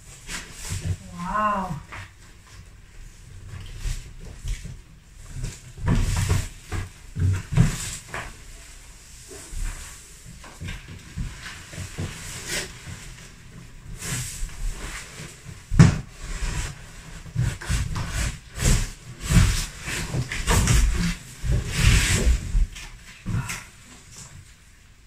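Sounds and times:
objects knocking and rustling: 9.4 - 24.6.

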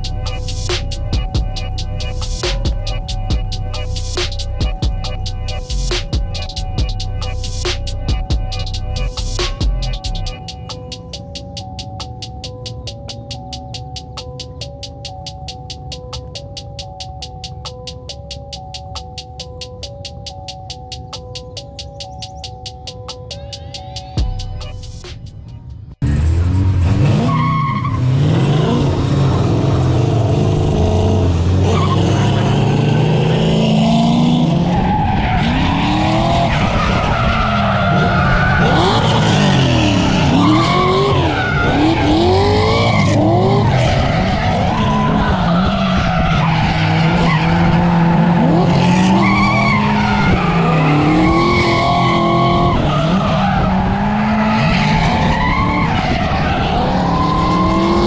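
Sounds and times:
car engine revving: 26.0 - 58.0
tyres squealing on concrete: 34.5 - 58.0.

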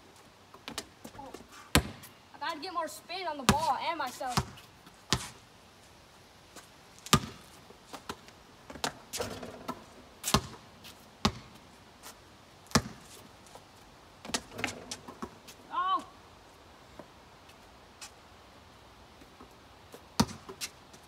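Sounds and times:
basketball bouncing: 1.7 - 2.1, 3.5 - 3.7, 4.3 - 5.3, 7.1 - 7.4, 8.7 - 10.6, 11.2 - 11.6, 12.7 - 13.0, 20.2 - 20.5
ball hitting backboard rattle: 8.8 - 10.5, 14.3 - 15.4.

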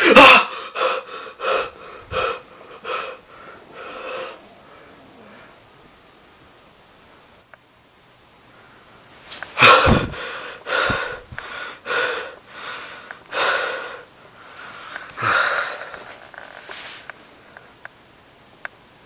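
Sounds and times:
person breathing hard: 0.0 - 5.6, 9.6 - 16.2
breath blowing on microphone: 9.6 - 11.6.

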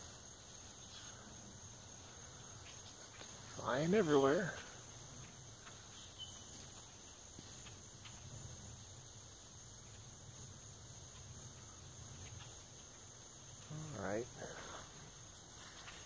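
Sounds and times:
insects droning: 0.0 - 16.0
faint ticks: 2.0 - 3.6, 11.0 - 16.0.

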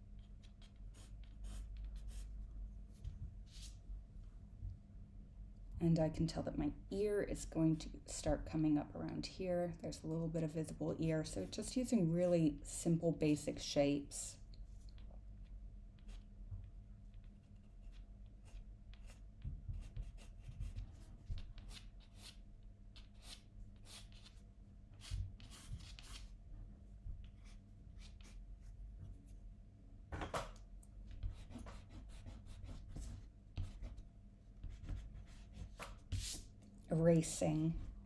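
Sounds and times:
pencil scratching on paper: 0.2 - 2.3, 17.4 - 22.4, 23.0 - 24.4, 25.0 - 26.3, 31.2 - 34.0, 34.6 - 36.4.

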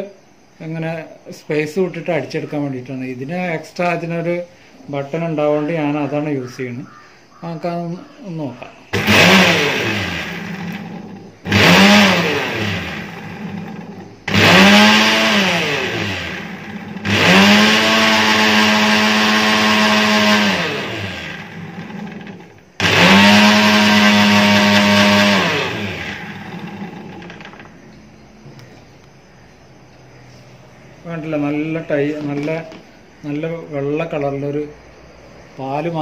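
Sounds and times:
mixer grinder motor whine: 8.9 - 27.8.

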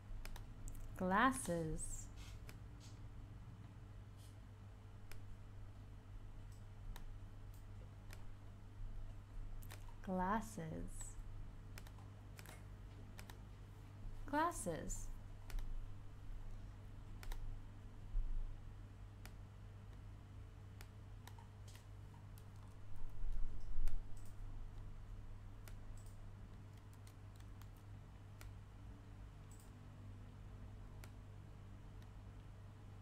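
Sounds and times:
low electrical hum: 0.0 - 33.0
computer mouse clicks: 0.2 - 1.6, 2.2 - 3.0, 5.0 - 5.3, 6.5 - 8.3, 9.6 - 10.1, 11.0 - 13.4, 15.4 - 15.7, 17.2 - 17.5, 19.2 - 20.0, 20.8 - 24.9, 25.6 - 28.6, 29.4 - 29.8, 31.0 - 31.2.

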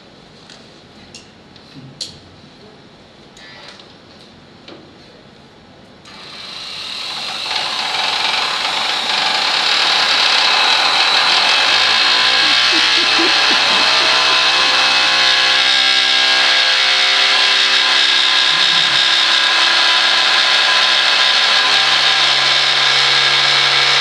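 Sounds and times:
electric sander buzzing: 9.1 - 22.1.

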